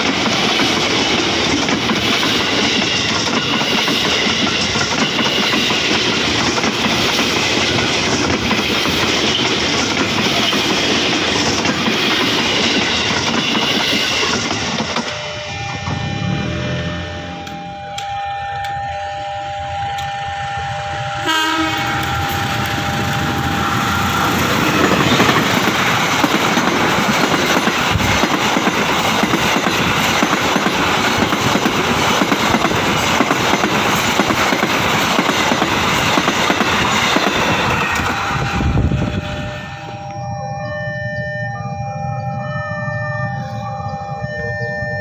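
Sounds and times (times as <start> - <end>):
train wheels clattering on rails: 0.0 - 16.6, 21.7 - 39.0
locomotive horn: 15.1 - 24.2, 38.5 - 45.0.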